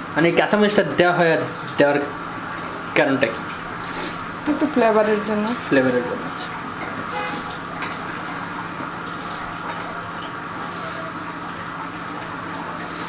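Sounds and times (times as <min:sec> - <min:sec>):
curry bubbling in a pan: 0:05.7 - 0:13.0.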